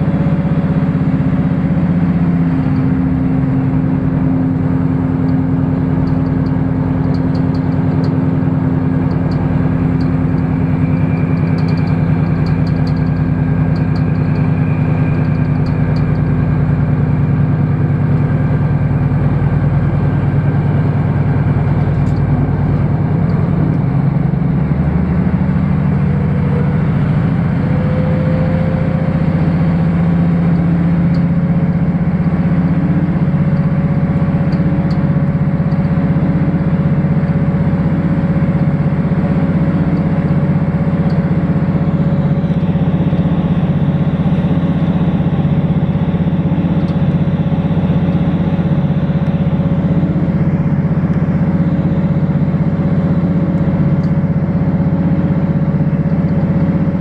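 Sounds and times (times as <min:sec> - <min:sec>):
diesel train engine drone: 0:00.0 - 0:57.0.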